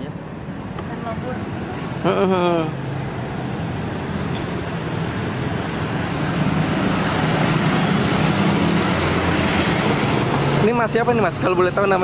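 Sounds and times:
passing motor vehicles: 0:00.0 - 0:12.0.

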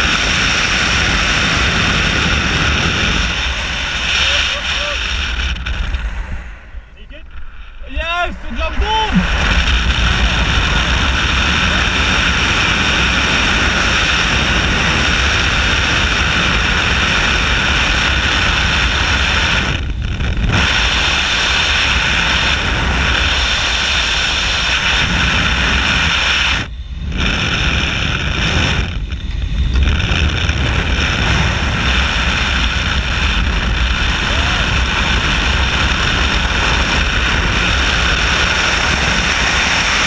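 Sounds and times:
rush of air streaming past: 0:00.8 - 0:14.8.

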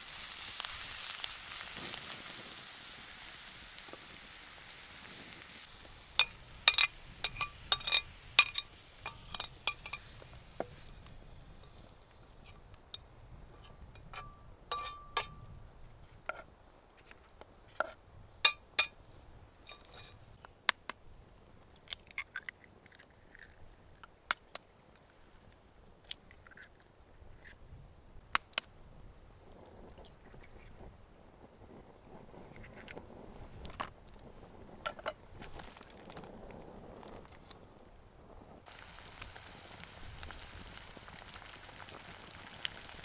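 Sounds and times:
utensil clinking against dishes: 0:06.2 - 0:10.1, 0:14.0 - 0:15.4
soft chewing: 0:21.9 - 0:23.7.

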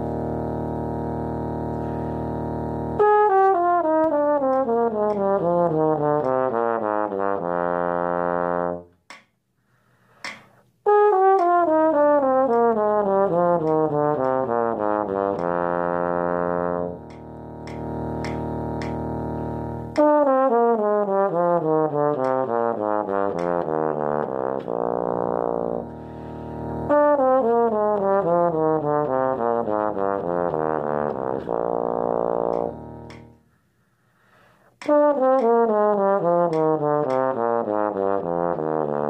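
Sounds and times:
bass trombone playing: 0:00.0 - 0:09.0, 0:10.8 - 0:33.5, 0:34.7 - 0:39.0
steady drone tone: 0:17.0 - 0:20.0.

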